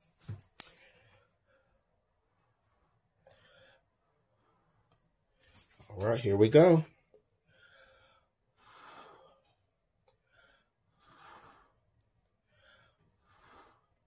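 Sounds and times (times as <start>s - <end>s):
quiet in-breaths: 0.6s - 2.0s, 2.7s - 5.7s, 7.4s - 14.0s.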